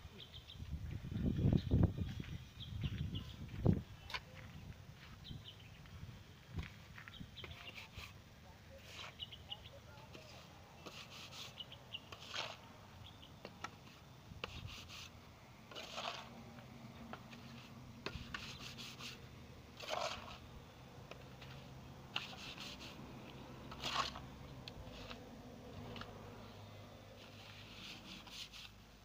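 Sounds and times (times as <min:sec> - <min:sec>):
trowel scraping cement: 0:07.4 - 0:08.2, 0:08.8 - 0:09.3, 0:10.1 - 0:12.7, 0:15.7 - 0:20.5, 0:21.1 - 0:23.0, 0:23.6 - 0:26.1, 0:27.2 - 0:28.8.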